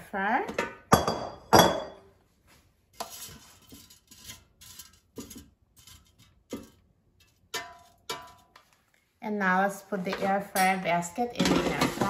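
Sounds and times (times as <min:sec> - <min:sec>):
metal fork scraping and tapping: 0:03.0 - 0:08.8
potatoes clattering into metal basket: 0:11.4 - 0:12.0.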